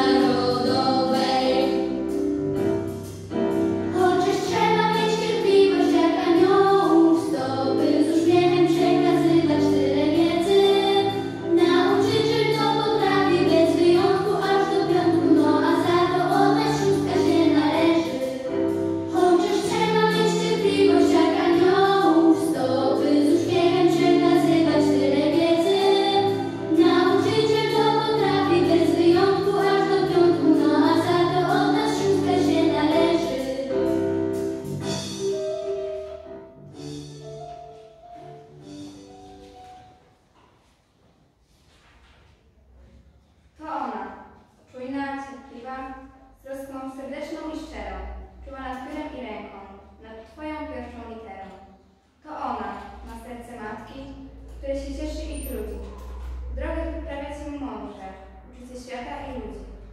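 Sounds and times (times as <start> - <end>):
girls singing together: 0.0 - 1.9, 3.9 - 33.9
instrumental accompaniment: 0.0 - 40.1.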